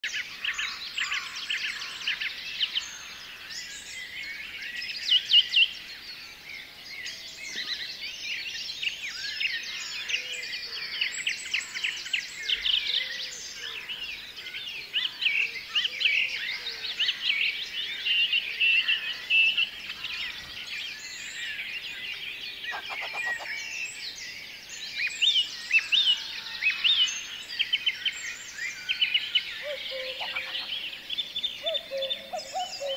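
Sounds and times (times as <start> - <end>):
bird singing trills and whistles: 7.0 - 32.9.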